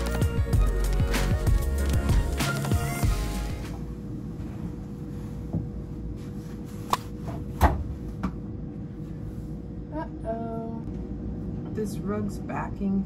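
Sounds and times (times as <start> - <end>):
steady low hum: 3.0 - 13.0.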